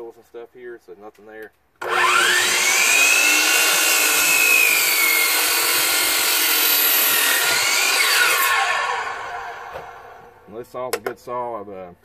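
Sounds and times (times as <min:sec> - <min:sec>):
miter saw cutting wood: 0:01.8 - 0:10.5.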